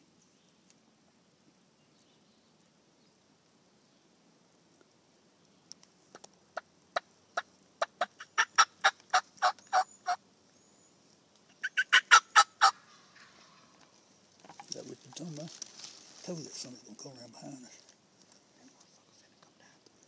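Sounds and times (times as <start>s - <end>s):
wild turkey calling: 6.1s - 10.3s, 11.4s - 16.2s.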